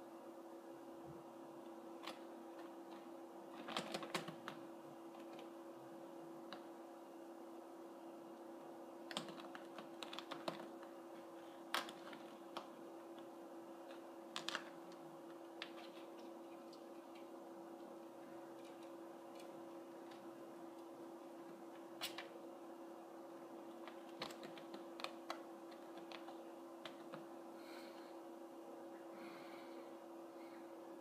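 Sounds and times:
kitten claws clicking on chair: 3.5 - 4.6, 9.1 - 10.8, 23.8 - 27.2.

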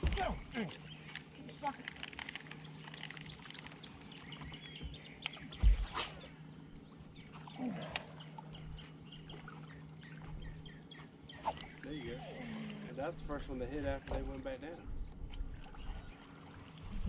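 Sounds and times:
steady low hum: 0.0 - 17.0
small birds chirping: 0.1 - 13.1.

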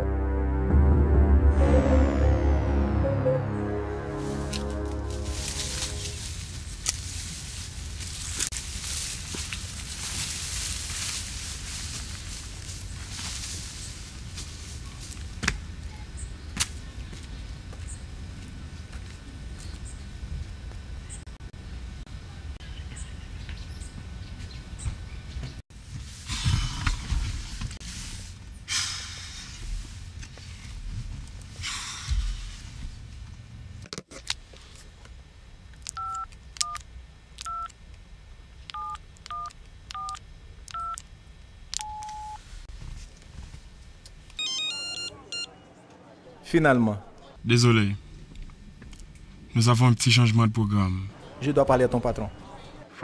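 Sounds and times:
long steady tone: 0.0 - 6.7
phone keypad dialing beeps: 36.0 - 36.8, 37.4 - 37.7, 38.7 - 41.0, 41.8 - 42.4, 44.4 - 45.5.

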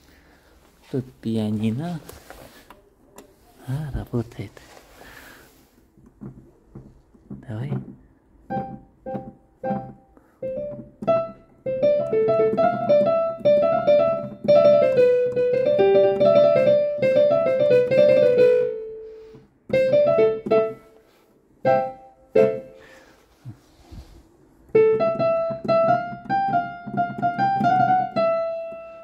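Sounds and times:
digital piano notes and chords: 7.7 - 22.9, 24.6 - 29.0.

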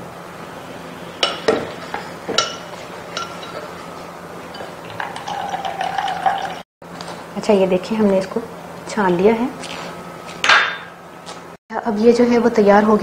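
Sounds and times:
sieve clinking against glass bowl: 1.2 - 3.8, 4.5 - 6.6
juice trickling into bowl: 4.5 - 6.6.

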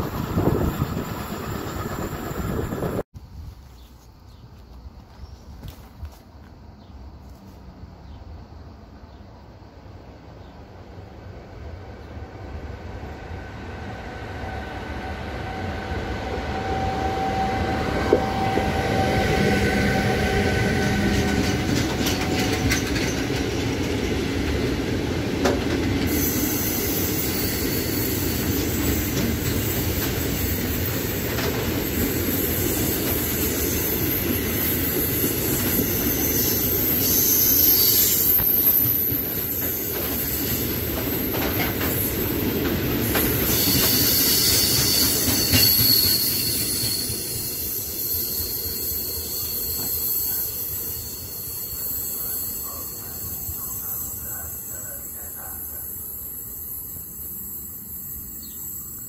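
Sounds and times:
train wheels rumbling: 0.0 - 3.1, 10.9 - 58.6
high-pitched wheel squeal: 15.1 - 22.9, 32.3 - 40.7, 43.4 - 54.1.

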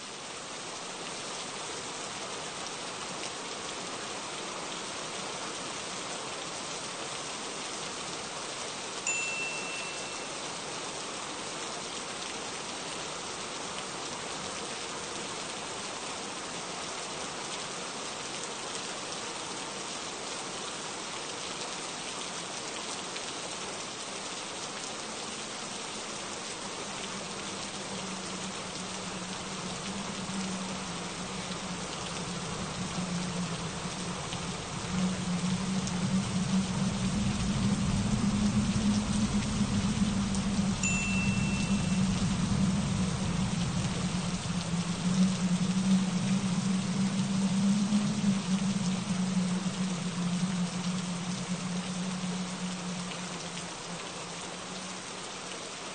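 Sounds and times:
steady rain falling: 0.0 - 55.9
short high ringing tone: 9.1 - 10.6, 39.9 - 46.2.

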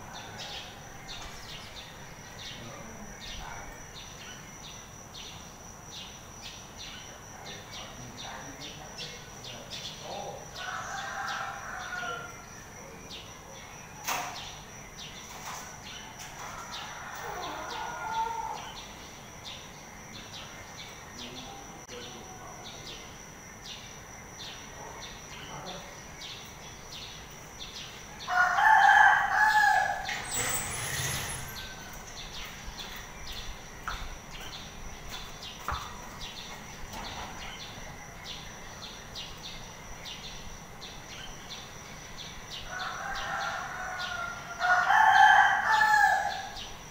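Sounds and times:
rooster crowing: 10.6 - 12.5, 16.4 - 18.8, 28.1 - 32.2, 42.6 - 46.6.

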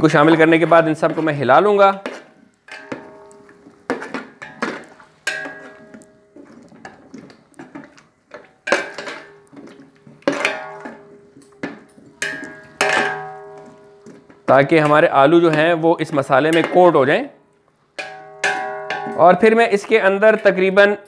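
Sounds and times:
ladle knocking and scraping pot: 0.0 - 17.1, 18.0 - 20.7
metal pot ringing: 2.7 - 3.7, 5.2 - 6.4, 8.6 - 15.7, 18.0 - 19.7.

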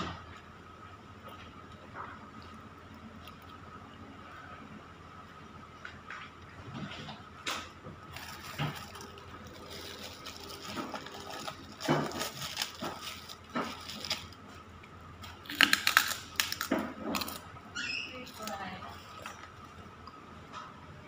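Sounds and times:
crisp cracker crunching: 8.0 - 17.5, 18.2 - 19.9
plastic bag crinkling: 8.0 - 17.5, 18.1 - 19.9.

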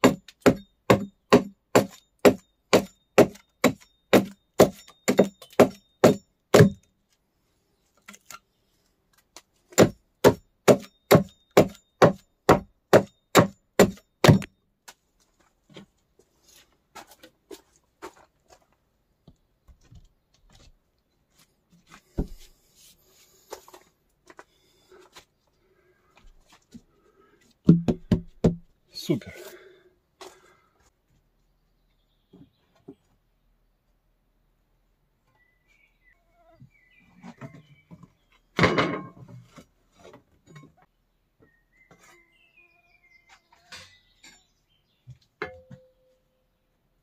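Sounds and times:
hand tool striking wood: 0.0 - 6.9, 9.7 - 14.5, 27.6 - 28.6.

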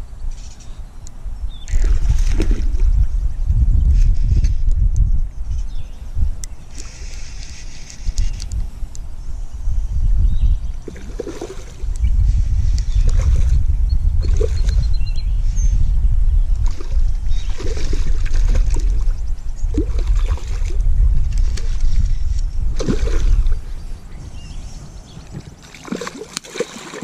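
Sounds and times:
wind buffeting microphone: 0.0 - 27.0
fish splashing in water: 1.7 - 2.8, 10.8 - 12.0, 16.6 - 19.1, 19.7 - 22.1, 22.7 - 23.6, 25.4 - 27.0.

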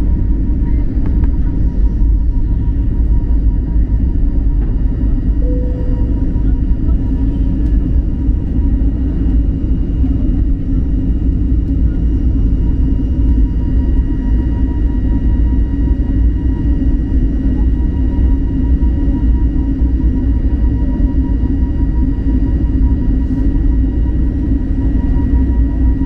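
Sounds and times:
aircraft engine and airflow rumble: 0.0 - 26.0
faint whining tones: 5.2 - 8.0.

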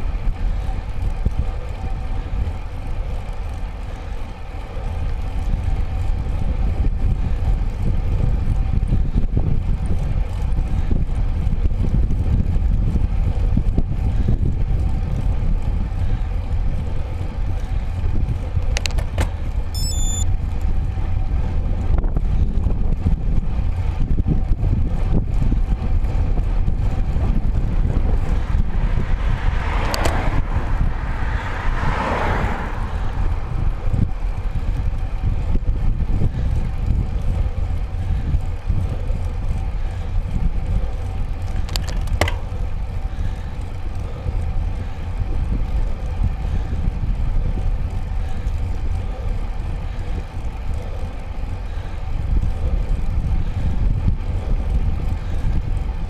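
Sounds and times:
wind on microphone: 4.8 - 56.0
car passing: 28.2 - 34.9.

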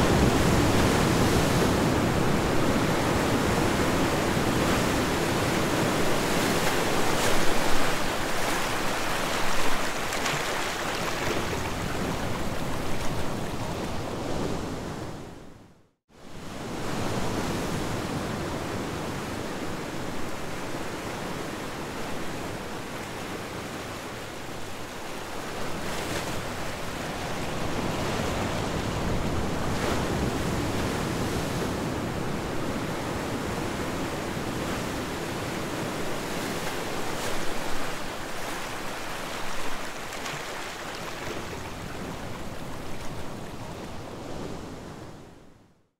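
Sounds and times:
ocean surf rushing: 0.0 - 15.2.

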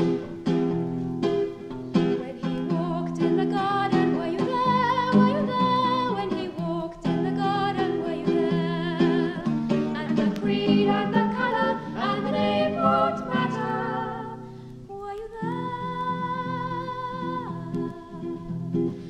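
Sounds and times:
acoustic guitar chords: 0.0 - 19.0
person singing long wavering notes: 10.2 - 18.8.

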